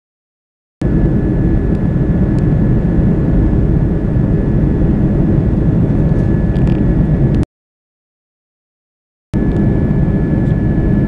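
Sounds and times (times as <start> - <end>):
jet engines roaring: 0.8 - 7.4, 9.4 - 11.0
thin steady whine: 0.8 - 7.4, 9.4 - 11.0.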